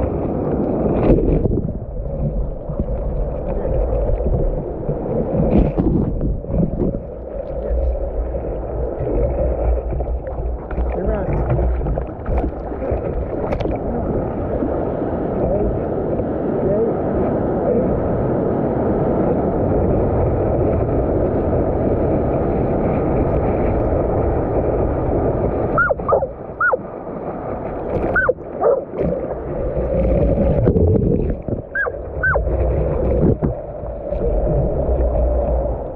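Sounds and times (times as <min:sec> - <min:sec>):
surf rushing: 0:00.0 - 0:35.9
dog barking: 0:25.8 - 0:26.8, 0:28.2 - 0:28.8, 0:31.8 - 0:32.4.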